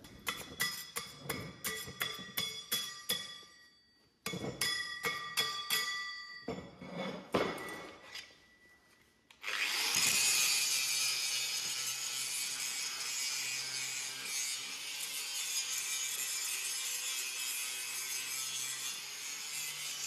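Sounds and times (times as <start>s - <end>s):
steel plates clinking: 0.3s - 8.0s.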